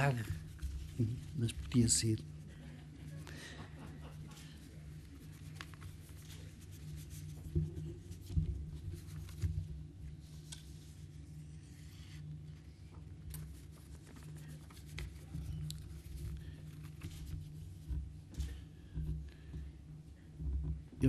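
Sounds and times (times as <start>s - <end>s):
steady low hum: 0.0s - 21.0s
paper rustling: 4.4s - 9.6s, 13.3s - 17.6s.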